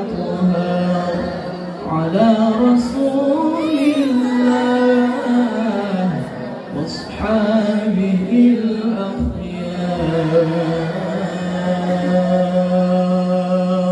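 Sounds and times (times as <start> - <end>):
man chanting into a microphone: 0.0 - 13.9.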